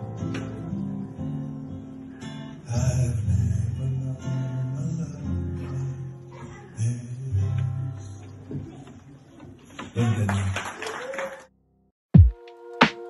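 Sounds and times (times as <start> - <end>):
acoustic guitar strumming chords: 0.0 - 8.2.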